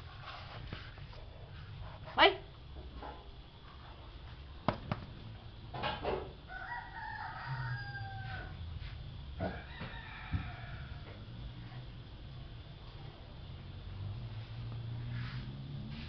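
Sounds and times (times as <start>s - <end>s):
rooster crowing: 6.3s - 11.5s.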